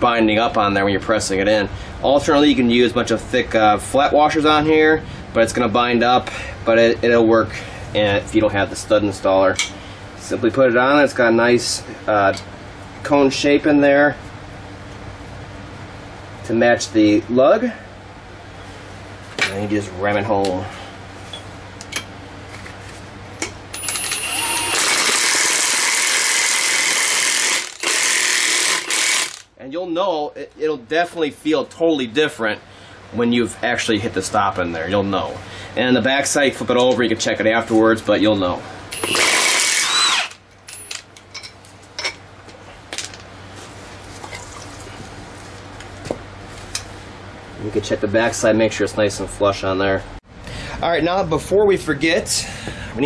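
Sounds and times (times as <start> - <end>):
impact wrench hammering: 23.8 - 29.5.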